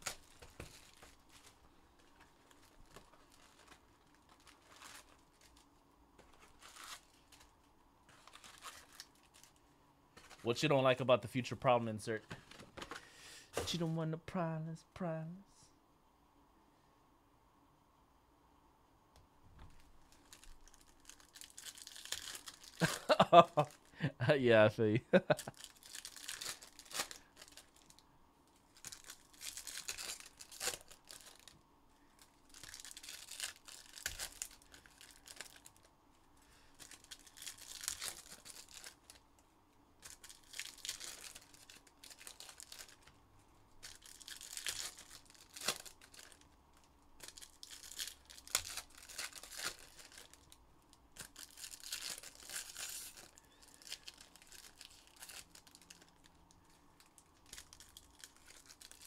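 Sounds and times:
card pack wrappers tearing and crinkling: 0.0 - 7.5, 8.1 - 9.6, 19.7 - 23.9, 25.2 - 28.0, 28.6 - 31.6, 32.2 - 35.9, 36.7 - 39.2, 40.0 - 43.1, 43.8 - 59.0.

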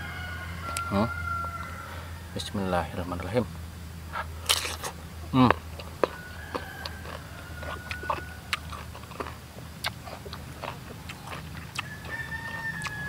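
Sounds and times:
person chewing crisp fruit: 4.1 - 13.0.

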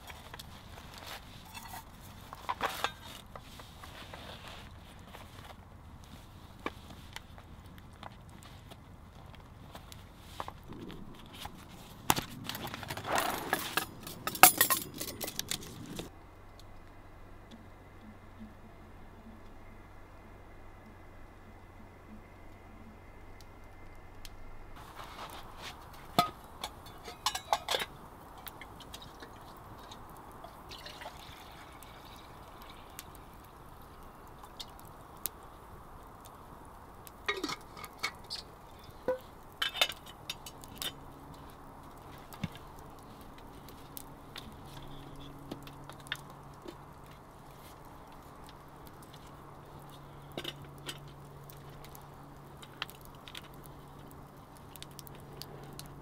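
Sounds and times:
campfire crackling: 0.0 - 56.0
faint low hum: 10.6 - 30.6
metal cups clinking: 13.0 - 16.1, 26.1 - 30.0, 37.3 - 38.4
drink being poured: 30.4 - 33.2.

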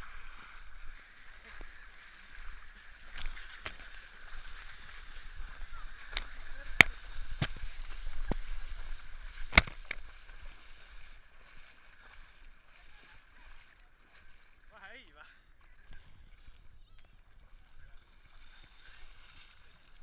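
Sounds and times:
seawater splashing and sloshing: 0.0 - 20.0
water tapping camera housing: 6.1 - 8.4, 9.4 - 10.1.

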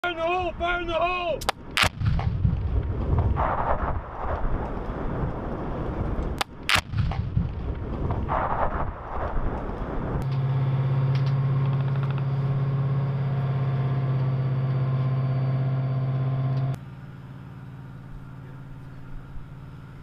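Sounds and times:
quieter engine hum: 0.0 - 20.0
diesel engine idling: 10.4 - 20.0.

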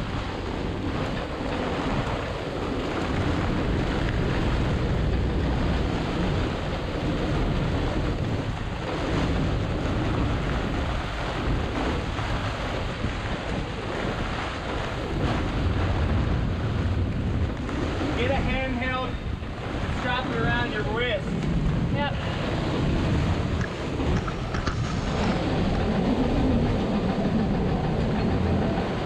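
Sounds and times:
water rushing: 0.0 - 29.0
wind rumbling on microphone: 0.0 - 29.0.

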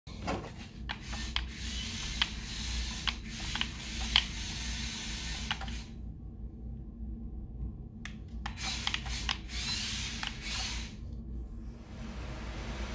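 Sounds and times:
toy robot motors whirring: 0.9 - 5.9, 8.5 - 11.0.

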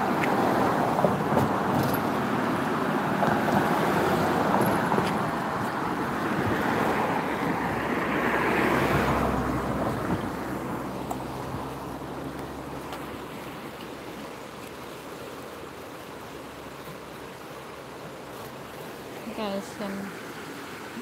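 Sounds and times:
car passing by: 0.0 - 14.2
road traffic rushing: 0.0 - 14.2.

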